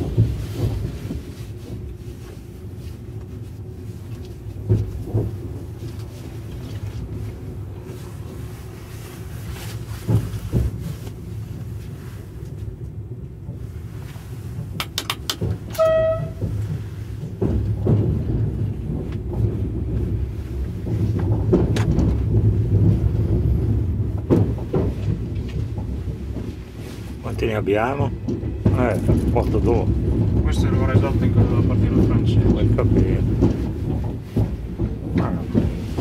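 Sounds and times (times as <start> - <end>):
train rumble: 0.0 - 36.0
sharp control clicks: 14.8 - 15.4.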